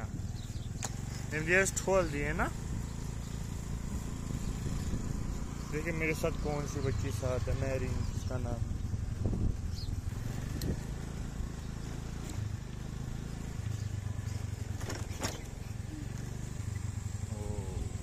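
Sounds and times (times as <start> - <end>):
motorcycle engine rumble: 0.0 - 18.0
wind on microphone: 3.6 - 5.6, 7.8 - 11.0.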